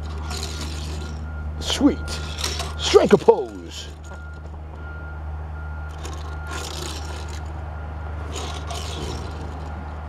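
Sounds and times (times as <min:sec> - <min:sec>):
toy car scraping on wood: 0:00.0 - 0:04.5, 0:05.9 - 0:07.6, 0:08.2 - 0:09.9.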